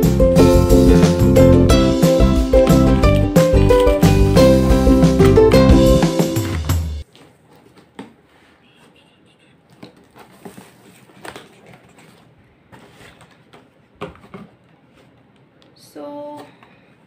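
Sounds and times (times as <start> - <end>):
background music: 0.0 - 7.0.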